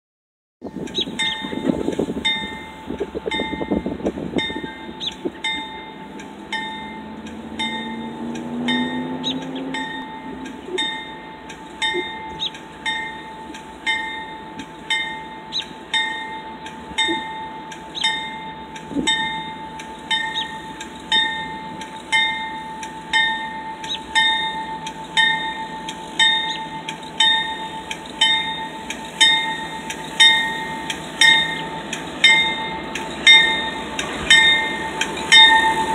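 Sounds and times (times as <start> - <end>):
low tone rising in pitch: 0.6 - 12.6
locomotive bell ringing: 0.6 - 35.9
low train rumble: 0.6 - 35.9.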